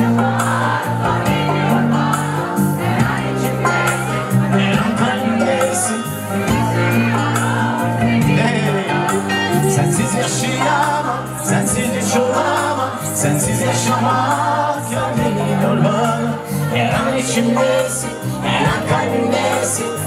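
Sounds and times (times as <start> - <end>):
pop band music: 0.0 - 20.0.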